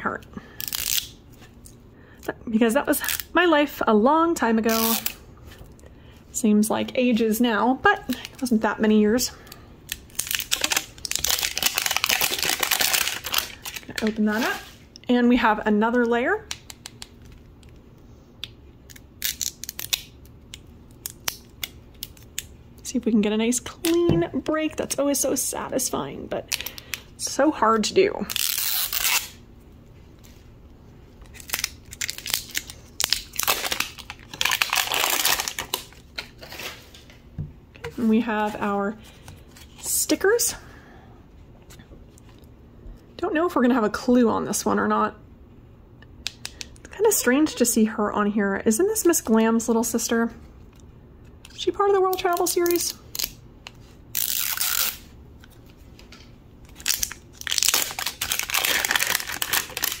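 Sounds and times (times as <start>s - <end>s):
wrapper crinkling and tearing: 0.6s - 1.2s, 4.7s - 5.2s, 9.9s - 14.8s, 18.9s - 20.3s, 28.3s - 29.4s, 31.2s - 36.8s, 52.1s - 53.4s, 54.1s - 55.8s, 56.7s - 60.0s.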